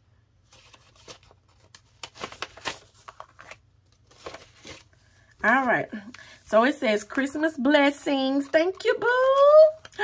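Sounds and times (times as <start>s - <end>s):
soft paper rustles: 0.4s - 5.8s.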